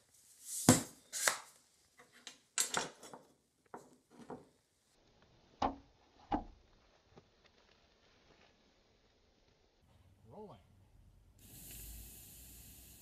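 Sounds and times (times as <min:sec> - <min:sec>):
hard objects knocking and clattering: 0:02.0 - 0:04.6.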